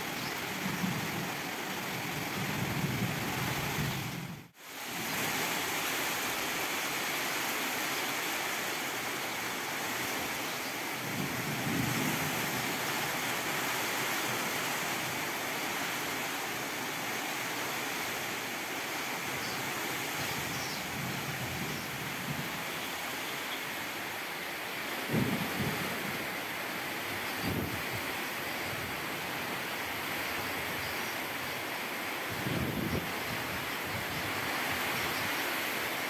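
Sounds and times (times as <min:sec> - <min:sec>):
heavy rain hissing: 0:00.0 - 0:36.0.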